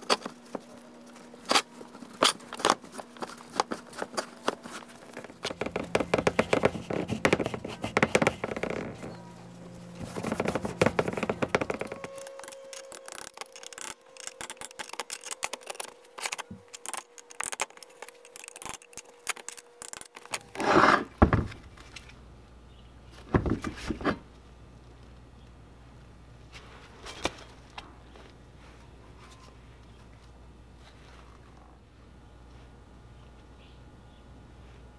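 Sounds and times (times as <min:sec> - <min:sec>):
metal parts clinking and scraping: 0:11.9 - 0:21.0.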